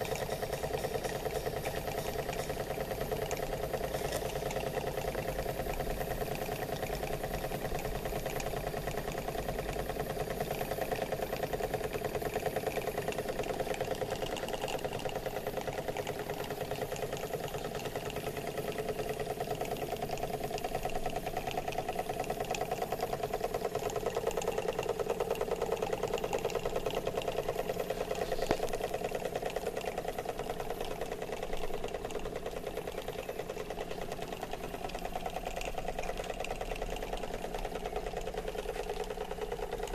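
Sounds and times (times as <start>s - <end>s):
steam model engines clattering: 0.0s - 39.9s.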